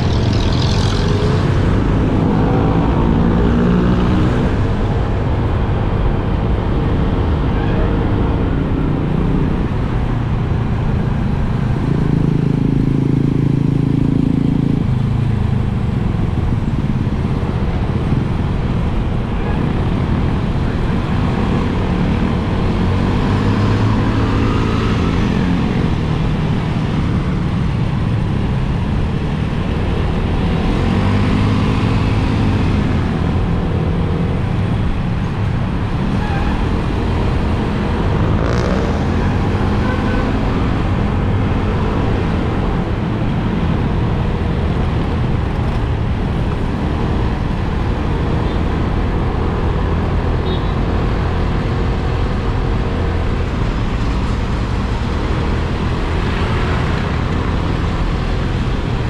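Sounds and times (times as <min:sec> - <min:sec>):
wind and road rush: 0:00.0 - 0:59.0
motorcycle engine revving: 0:36.1 - 0:43.8.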